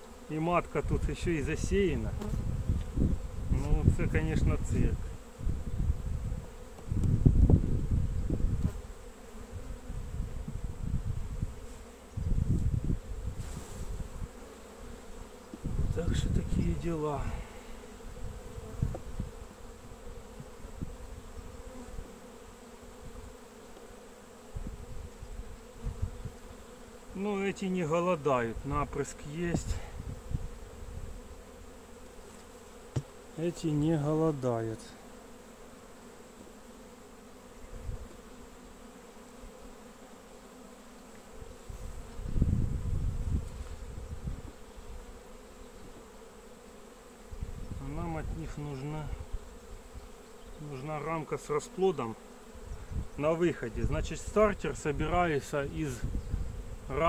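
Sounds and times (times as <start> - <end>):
wooden hive frames thumping: 0.0 - 5.6, 18.0 - 21.8, 32.0 - 34.0
bees humming: 0.0 - 57.0
honeybees buzzing: 0.0 - 57.0.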